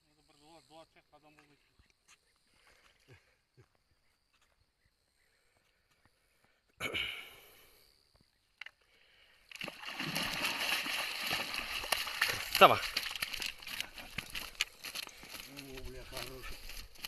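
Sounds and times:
fish splashing at surface: 0:09.5 - 0:14.6.

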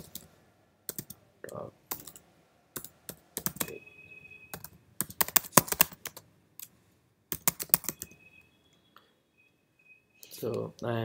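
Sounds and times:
typing on computer keyboard: 0:00.9 - 0:01.2, 0:01.9 - 0:02.2, 0:02.8 - 0:03.8, 0:04.5 - 0:06.7, 0:07.3 - 0:08.2.

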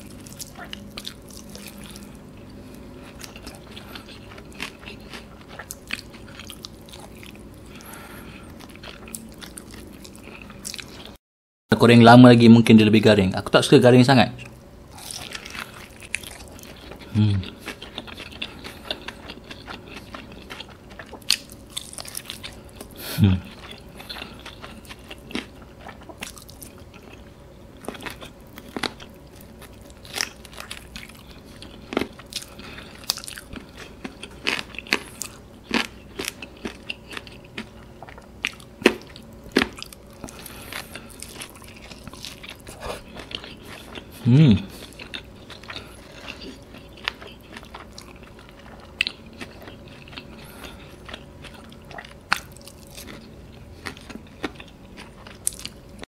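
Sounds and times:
crunchy chewing: 0:00.0 - 0:11.2, 0:14.4 - 0:56.0
person humming: 0:17.1 - 0:17.4, 0:23.1 - 0:23.5, 0:44.2 - 0:44.8.

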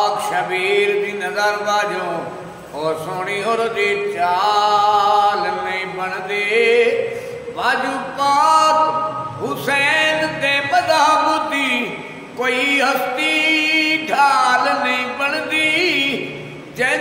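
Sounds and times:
man singing unaccompanied: 0:00.0 - 0:17.0
man breathing: 0:07.1 - 0:07.6.

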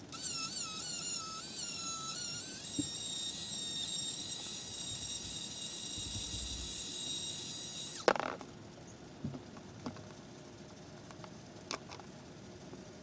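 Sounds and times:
rotary tool high-pitched whine: 0:00.0 - 0:08.4.

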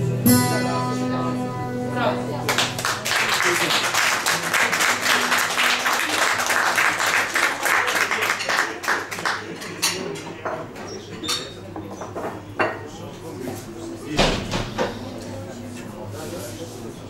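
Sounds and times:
audience applauding: 0:02.5 - 0:09.6.

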